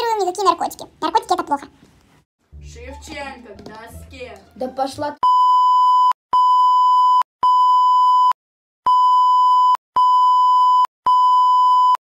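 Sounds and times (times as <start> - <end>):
censor bleep: 5.2 - 12.0.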